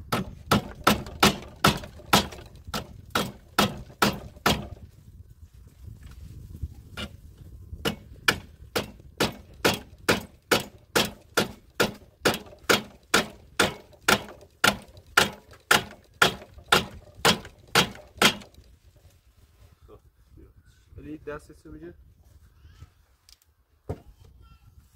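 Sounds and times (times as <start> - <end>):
hammer striking wood: 0.0 - 4.8, 7.8 - 18.6.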